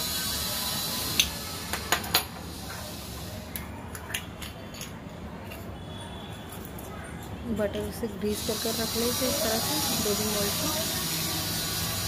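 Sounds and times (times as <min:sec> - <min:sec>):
steady hiss: 0:00.0 - 0:01.6, 0:08.3 - 0:12.0.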